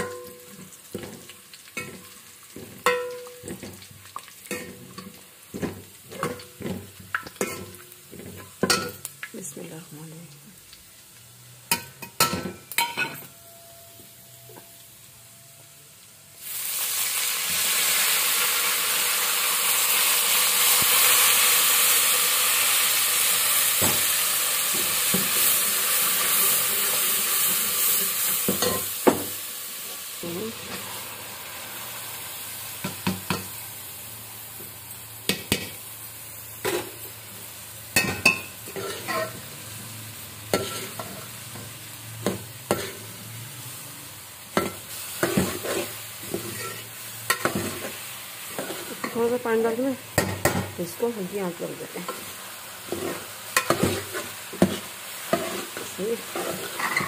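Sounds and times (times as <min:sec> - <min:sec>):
onions sizzling in hot oil: 0:00.0 - 0:57.0
metal spoon scraping a pot: 0:38.3 - 0:39.4, 0:40.5 - 0:41.2, 0:44.6 - 0:49.2, 0:52.9 - 0:57.0.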